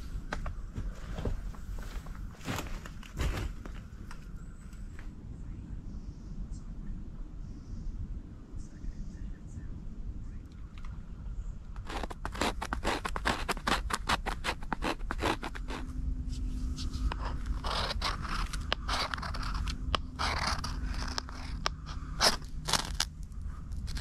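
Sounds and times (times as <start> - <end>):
knife scraping bark: 11.8 - 16.0, 16.8 - 23.1.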